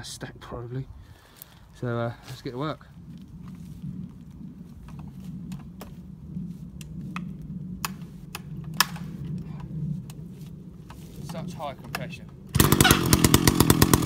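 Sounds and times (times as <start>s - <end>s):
steady low hum: 0.0s - 14.0s
chainsaw starter cord clicks and knocks: 11.8s - 14.0s.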